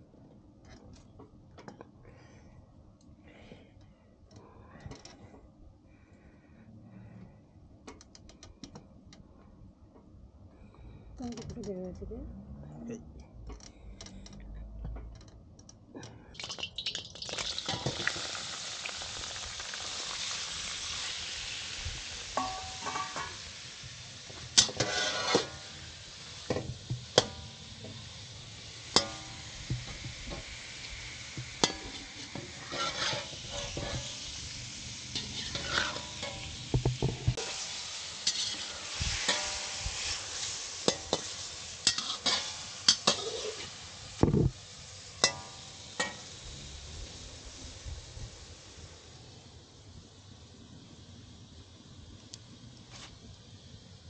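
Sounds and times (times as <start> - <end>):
food sizzling in a pan: 16.4 - 51.8.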